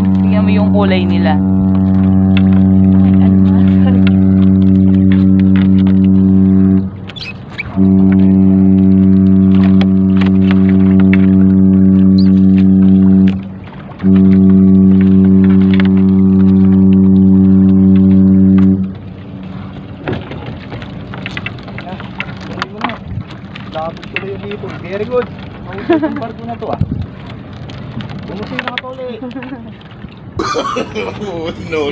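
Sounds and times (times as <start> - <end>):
loud low-pitched hum: 0.0 - 23.3.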